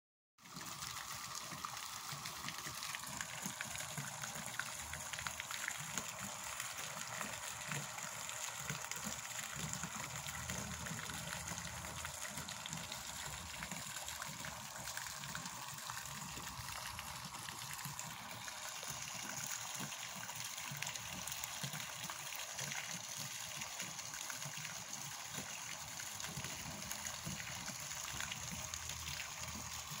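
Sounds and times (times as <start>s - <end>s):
fountain splashing into pond: 0.4s - 30.0s.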